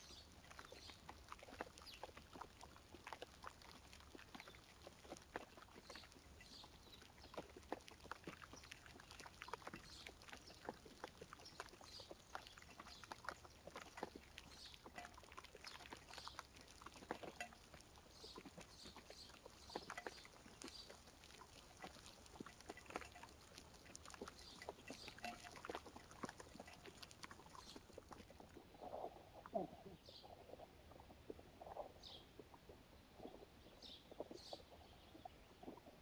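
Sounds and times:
raindrops ticking on leaves: 0.0 - 28.6.

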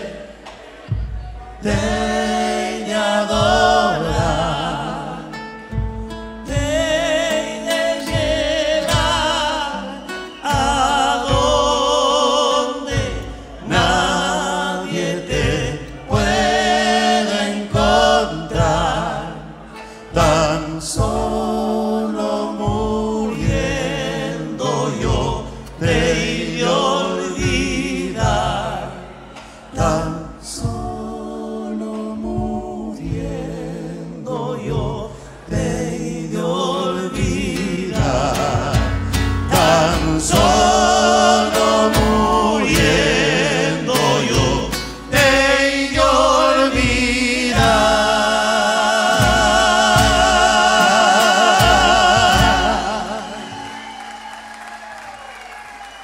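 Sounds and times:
bass drum strokes: 0.0 - 12.1, 12.8 - 53.7
men singing in harmony: 0.0 - 54.2
acoustic guitars: 0.0 - 56.0.

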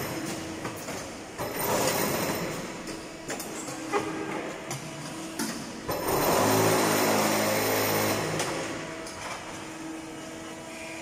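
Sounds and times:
loud machine buzzing: 5.9 - 9.0.

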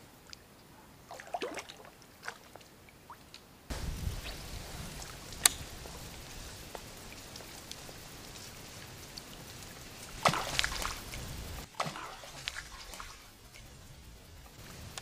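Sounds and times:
water splashes and drips: 0.2 - 15.0
steady hiss: 3.4 - 15.0.

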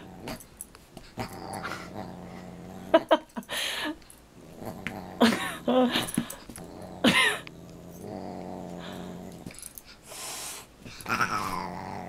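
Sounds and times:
dog growling: 0.0 - 0.5, 1.1 - 3.2, 4.4 - 9.7, 11.0 - 12.0.

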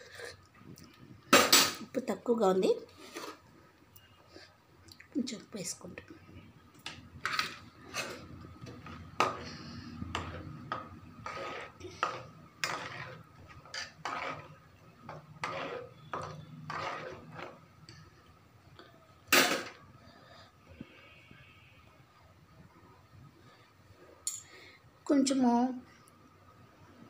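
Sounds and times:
wooden spatula scraping metal pan: 2.7 - 3.4, 7.2 - 17.7.

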